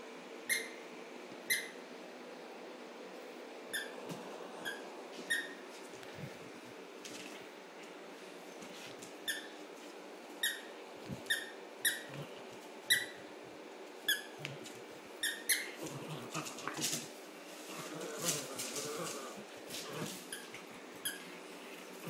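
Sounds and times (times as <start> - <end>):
dog toy squeaking: 0.5 - 0.8, 1.5 - 1.8, 3.7 - 4.0, 10.4 - 10.7, 11.3 - 12.1, 12.9 - 13.2, 15.2 - 15.8
scuffle of clicks and rustling: 16.3 - 20.7.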